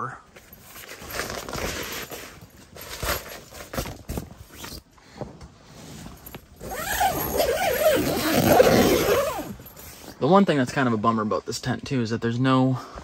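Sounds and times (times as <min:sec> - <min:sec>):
fabric rustling: 0:00.4 - 0:10.2
tent zipper being pulled: 0:00.6 - 0:04.9, 0:05.6 - 0:10.2.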